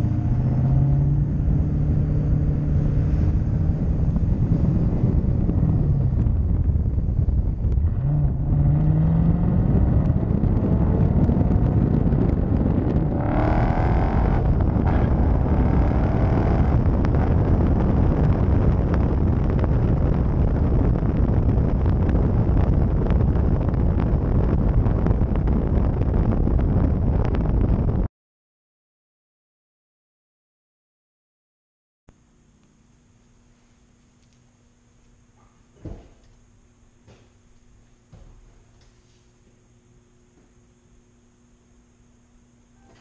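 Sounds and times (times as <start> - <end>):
road noise: 0.0 - 25.5
loud exhaust drone: 0.0 - 28.1, 32.1 - 43.0.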